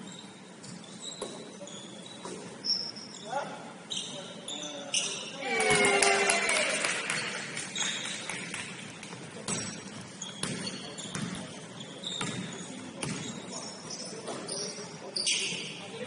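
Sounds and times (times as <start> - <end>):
shoe squeaks: 0.0 - 5.4, 7.7 - 8.3, 9.5 - 16.0
basketball bouncing: 9.2 - 11.5, 12.2 - 13.4.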